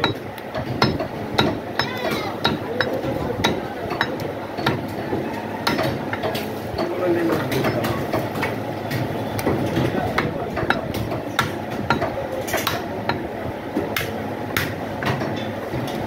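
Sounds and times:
cleavers chopping on wooden blocks: 0.0s - 13.2s, 13.8s - 16.0s
market hubbub with voices: 0.0s - 16.0s.

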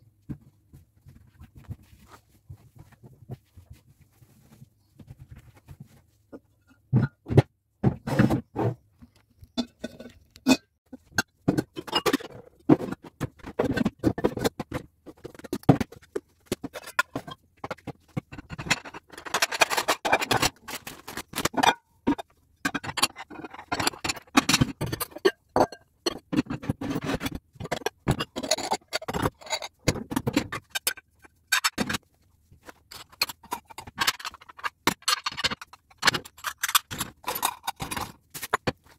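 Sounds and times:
plates scraping: 32.6s - 38.9s.

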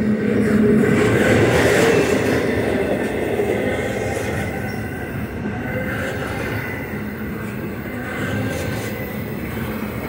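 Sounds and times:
steel wheels rumbling on rail: 0.0s - 10.0s
high wheel squeal: 4.2s - 9.4s.

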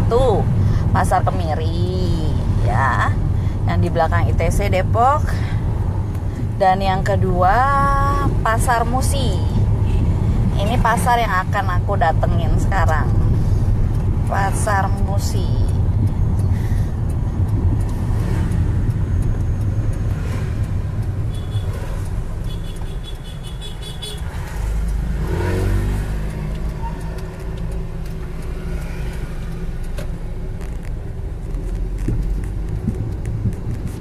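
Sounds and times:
car engine rumble: 0.0s - 34.0s
pitched vehicle sound: 0.0s - 34.0s
road noise: 0.0s - 34.0s.

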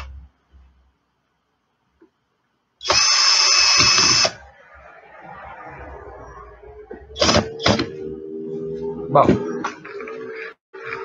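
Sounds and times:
electric screwdriver whining: 2.8s - 4.4s.

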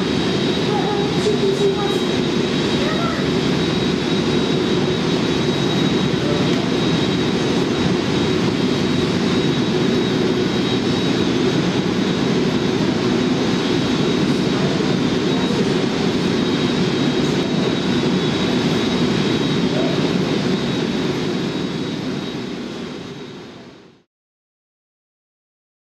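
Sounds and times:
jet engines rumbling with whine: 0.0s - 24.1s.

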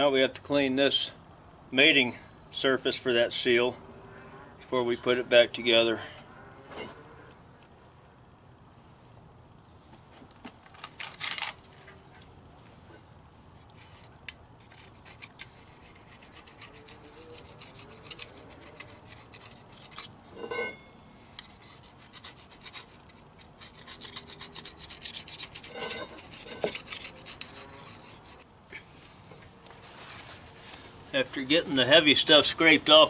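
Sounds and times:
knife scraping metal: 13.6s - 28.5s.

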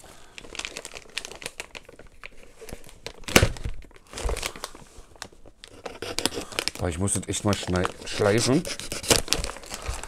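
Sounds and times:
plastic bag crinkling: 0.0s - 10.0s.

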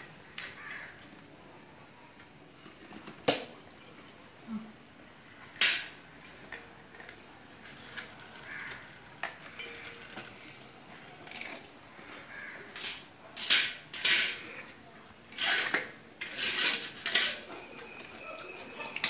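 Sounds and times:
metal plates clinking and scraping: 9.2s - 19.0s.

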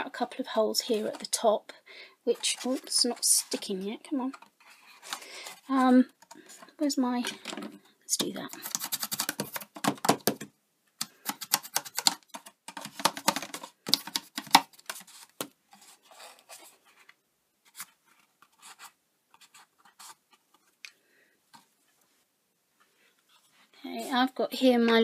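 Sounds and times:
card rustling and tapping: 7.2s - 21.7s.

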